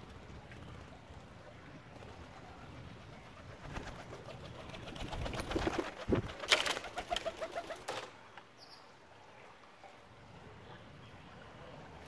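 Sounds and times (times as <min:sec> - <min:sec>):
wing flaps: 0:03.0 - 0:08.2.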